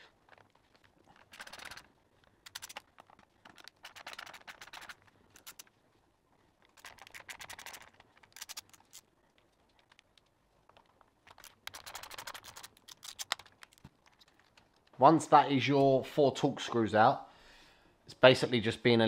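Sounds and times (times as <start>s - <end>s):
screwdriver scratchy clicks: 1.2s - 5.7s, 6.8s - 9.0s, 11.2s - 14.6s.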